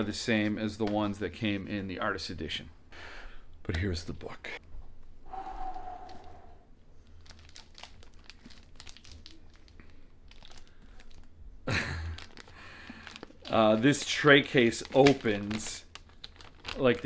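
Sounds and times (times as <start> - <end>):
plastic wrapping crinkling: 7.0 - 17.0.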